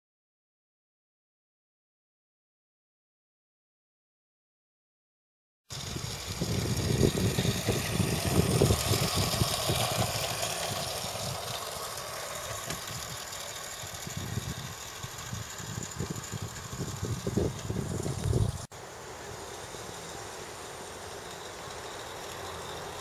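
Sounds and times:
toy locomotive motor running: 5.7s - 23.0s
wheels rattling over rails: 5.7s - 23.0s.

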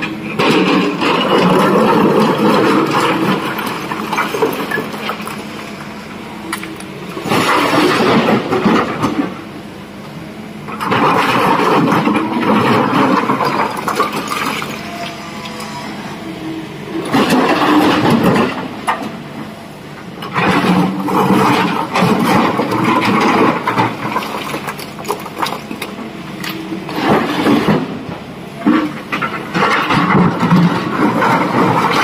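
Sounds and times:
excavator diesel engine running: 0.0s - 32.0s.

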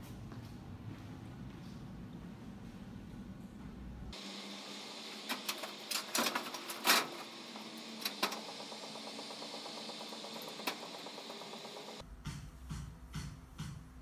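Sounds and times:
low room hum: 0.0s - 14.0s
locker clicks and clacks: 5.3s - 12.0s.

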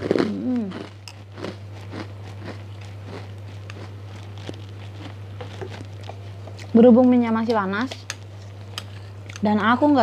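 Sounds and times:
crunchy chewing of cracker: 0.0s - 7.2s.

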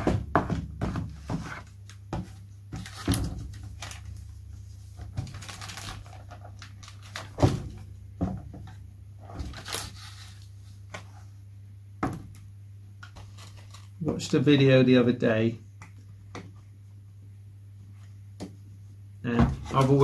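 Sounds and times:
plastic film rustling and crinkling: 2.7s - 7.9s, 9.2s - 10.5s, 13.0s - 14.5s, 19.7s - 20.0s.

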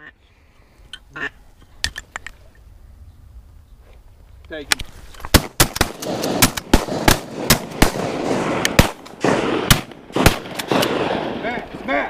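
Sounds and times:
shotgun shots: 5.3s - 11.6s.

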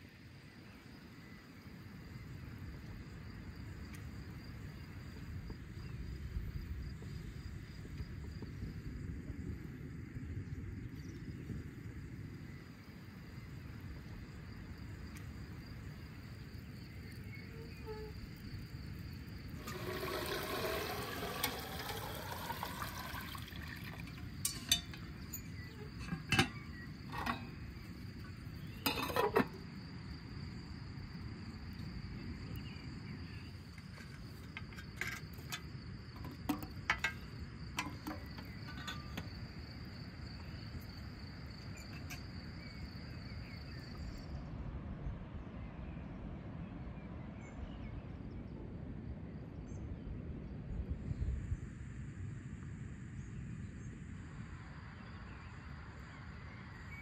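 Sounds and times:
insect chirring: 14.4s - 44.2s
metal lid clinks: 19.6s - 27.7s, 28.8s - 29.6s, 36.2s - 39.4s, 41.7s - 42.2s.

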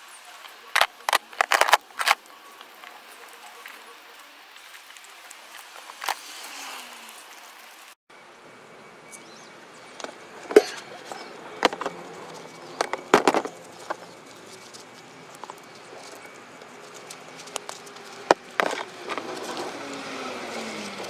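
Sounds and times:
metal parts clicking on plastic: 0.8s - 2.2s.

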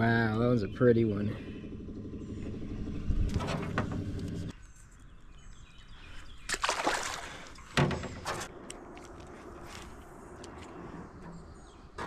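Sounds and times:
small boat motor idling: 1.4s - 4.5s
splash in water: 6.5s - 7.6s.

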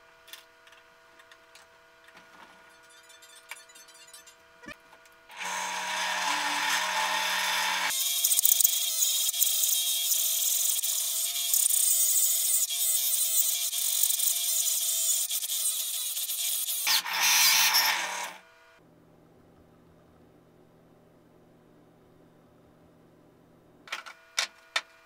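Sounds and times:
drill press running: 5.3s - 7.9s
hole saw cutting plywood: 5.3s - 18.4s.

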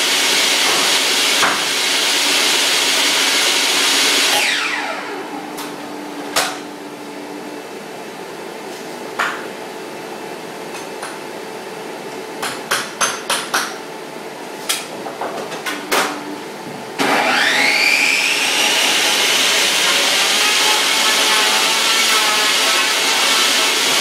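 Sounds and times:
saw motor starting up: 0.0s - 5.4s, 17.0s - 24.0s
table saw blade spinning down: 0.2s - 5.4s, 17.0s - 24.0s.

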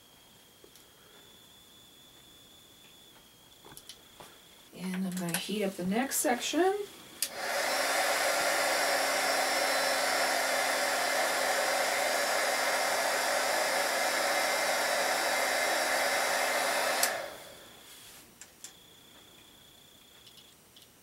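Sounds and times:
heat gun blowing hot air: 7.2s - 17.8s
heat gun switch click: 16.9s - 17.2s.

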